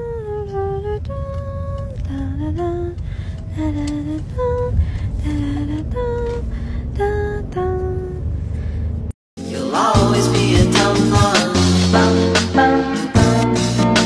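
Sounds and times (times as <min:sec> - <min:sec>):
low steady rumble: 0:00.0 - 0:09.2.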